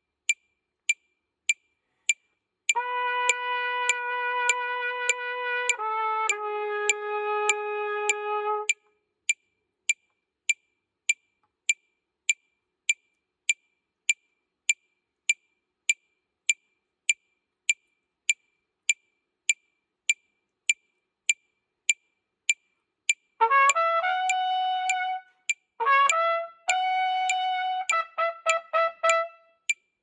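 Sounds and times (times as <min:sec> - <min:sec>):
metronome clicking: 0:00.3 - 0:13.6, 0:20.1 - 0:29.9.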